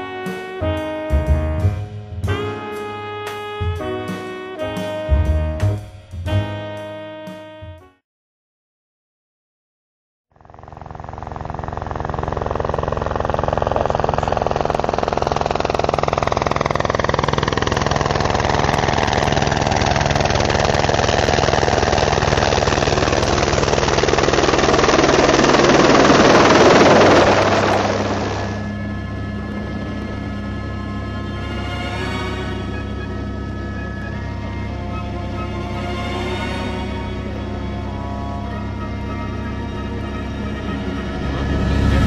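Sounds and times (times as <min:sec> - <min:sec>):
helicopter rotor and turbine: 0:10.3 - 0:42.0.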